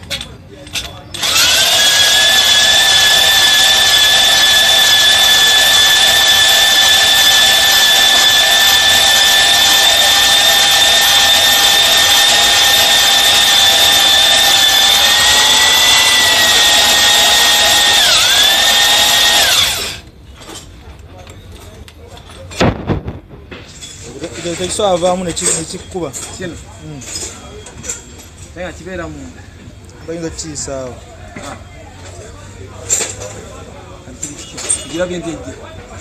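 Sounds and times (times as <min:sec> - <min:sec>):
drill motor whine: 0:01.2 - 0:20.0.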